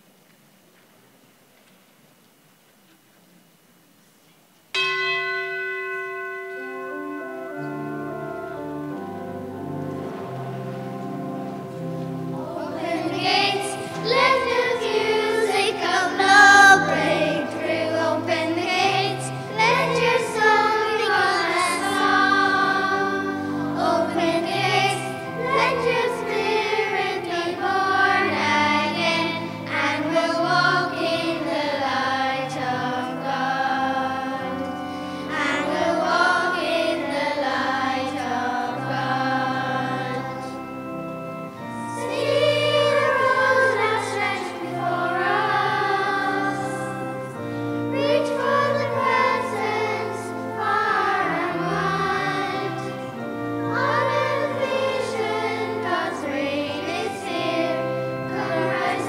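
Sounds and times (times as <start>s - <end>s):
sustained instrumental chords: 4.8s - 59.0s
voices singing a hymn: 6.9s - 59.0s.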